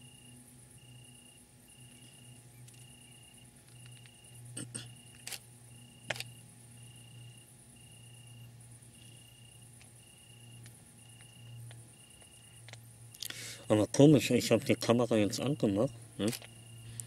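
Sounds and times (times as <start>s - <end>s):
continuous insect trill: 0.0s - 17.0s
crickets chirping: 0.0s - 17.0s
steady low hum: 0.0s - 17.0s.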